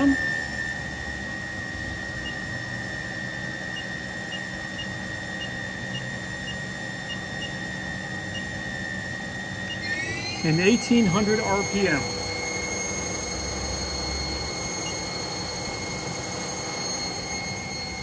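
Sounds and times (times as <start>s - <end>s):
lathe spindle whine: 0.0s - 18.0s.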